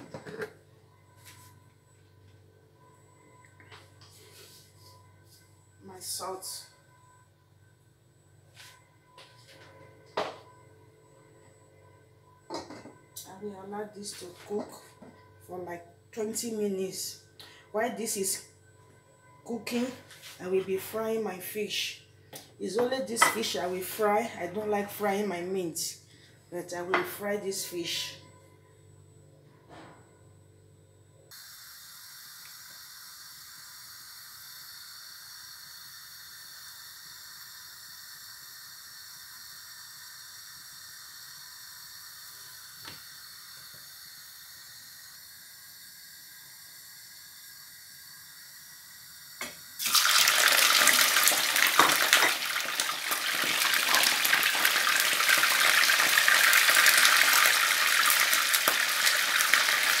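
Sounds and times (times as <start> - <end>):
hot oil hissing: 31.4 - 60.0
fish sizzling in oil: 49.8 - 60.0.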